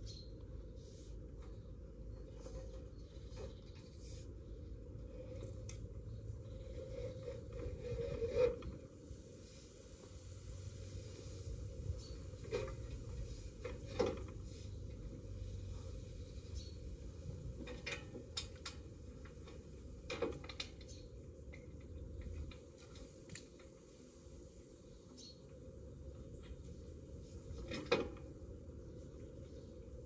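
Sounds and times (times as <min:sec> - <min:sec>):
tools clicking and knocking on metal pole: 0:17.6 - 0:23.7.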